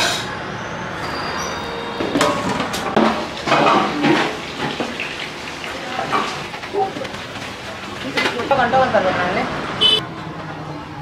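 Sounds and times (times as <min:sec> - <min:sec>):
metal pots and utensils clattering: 0:02.0 - 0:08.8.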